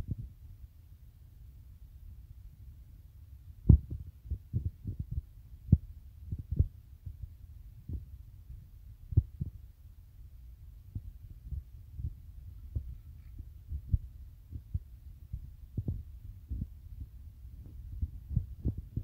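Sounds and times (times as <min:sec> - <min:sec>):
faint low rumble: 0:00.0 - 0:19.0.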